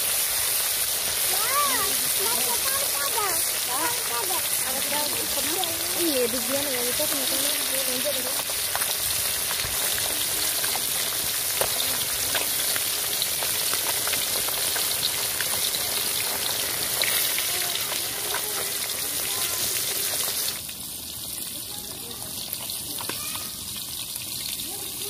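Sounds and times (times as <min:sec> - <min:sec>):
fish sizzling in hot oil: 0:00.0 - 0:25.0.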